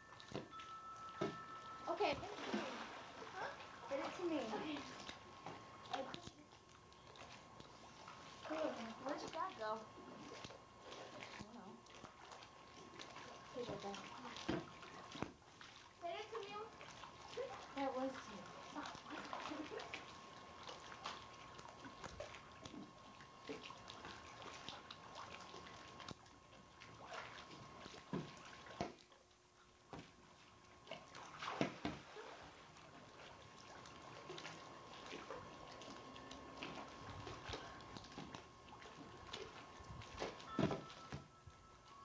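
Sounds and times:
faint steady tone: 0.0s - 10.6s, 33.2s - 42.0s
pool water splashing: 0.0s - 42.0s.

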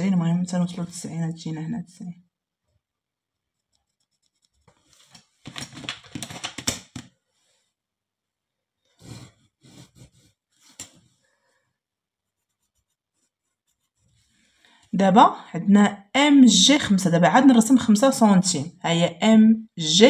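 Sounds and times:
pencil scratching along ruler: 3.2s - 5.3s, 9.0s - 11.1s, 12.1s - 14.5s.

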